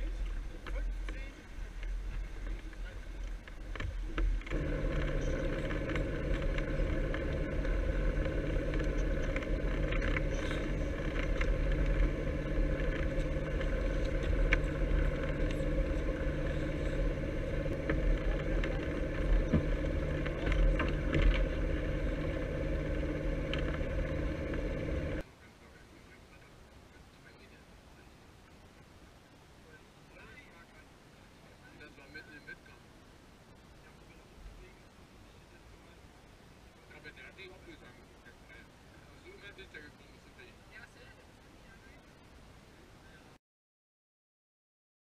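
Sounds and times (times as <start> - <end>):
boat motor humming: 0.0 - 25.2
small clicks and knocks: 17.7 - 25.2.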